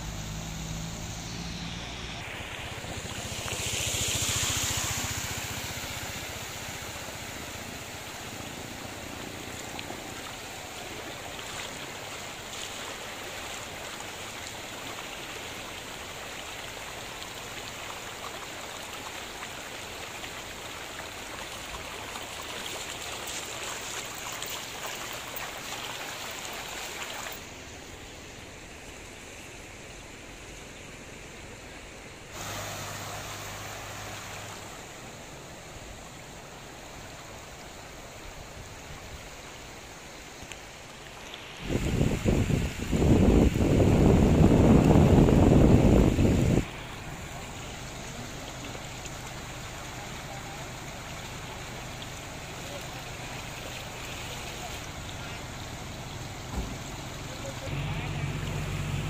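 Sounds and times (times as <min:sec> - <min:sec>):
floodwater rushing: 0:00.0 - 0:59.0.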